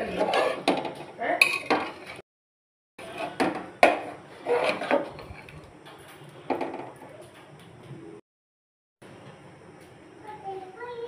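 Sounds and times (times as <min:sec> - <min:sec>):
metal spatula scraping a pot: 0:00.0 - 0:02.2, 0:03.0 - 0:05.7.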